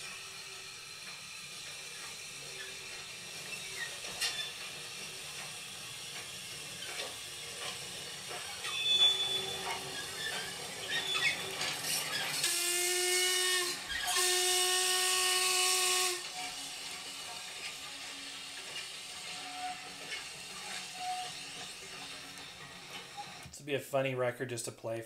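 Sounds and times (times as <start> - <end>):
hiss of steam: 0.0 - 22.7
high squeals and clanks: 0.0 - 23.6
steam whistle blasts: 8.7 - 22.1.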